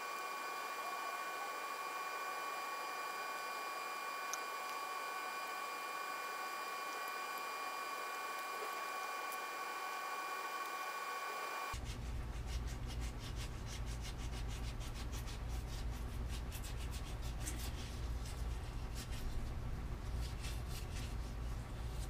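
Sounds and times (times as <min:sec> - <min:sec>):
steady high whine: 0:00.0 - 0:11.8
low hum: 0:00.0 - 0:12.4.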